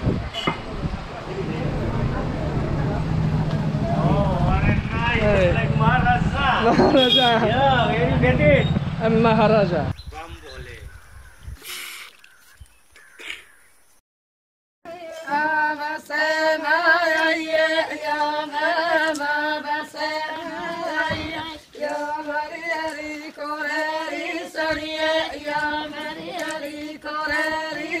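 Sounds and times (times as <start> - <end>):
steady held drone pitch: 1.1 - 9.3
chant-like singing: 14.9 - 28.0.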